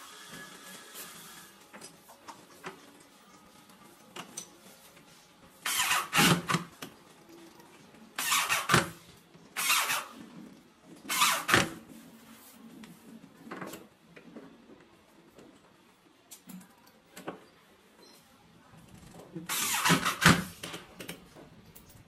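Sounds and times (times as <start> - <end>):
electric drill bursts: 5.6 - 6.5, 9.6 - 10.1, 11.1 - 11.6, 19.5 - 20.2.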